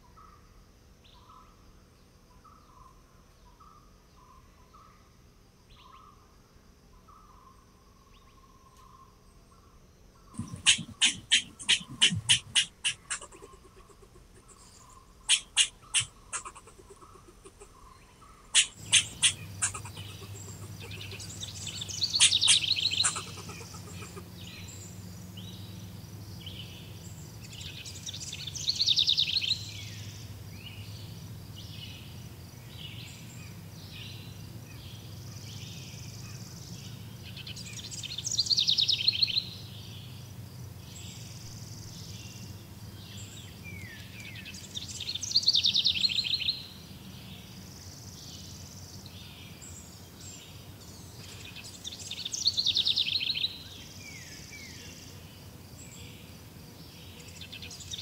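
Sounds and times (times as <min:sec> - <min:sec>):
low background hum: 0:00.0 - 0:58.0
birds chirping and singing: 0:07.0 - 0:40.2, 0:49.2 - 0:54.8.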